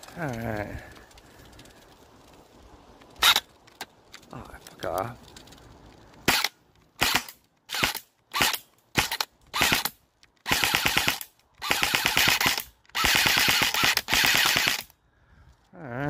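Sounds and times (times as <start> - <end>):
airsoft rifle firing bursts: 6.3 - 14.9.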